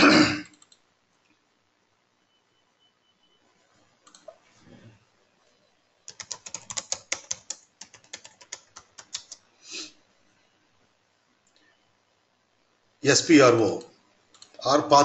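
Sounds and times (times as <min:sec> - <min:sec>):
computer keyboard typing: 0:00.5 - 0:00.8, 0:06.1 - 0:09.4, 0:14.3 - 0:14.6
short hissy sound: 0:09.6 - 0:09.9.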